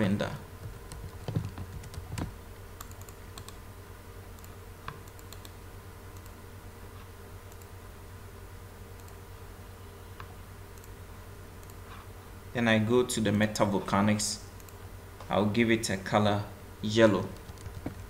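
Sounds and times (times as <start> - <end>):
keyboard keystrokes: 0.6 - 3.6, 17.4 - 18.0
mouse clicks: 4.4 - 5.6, 9.0 - 9.2.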